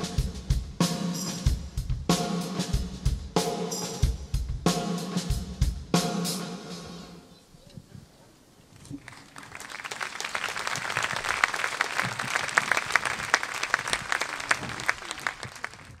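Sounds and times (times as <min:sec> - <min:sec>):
audience applause: 0:08.8 - 0:16.0.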